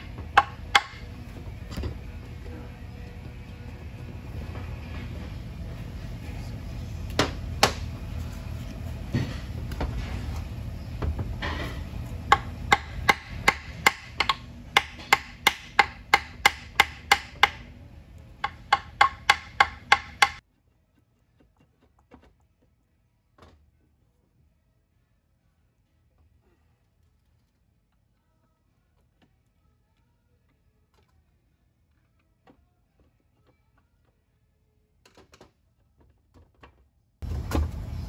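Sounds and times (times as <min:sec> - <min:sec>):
hammer tapping on metal: 0:12.3 - 0:17.7, 0:18.4 - 0:20.4.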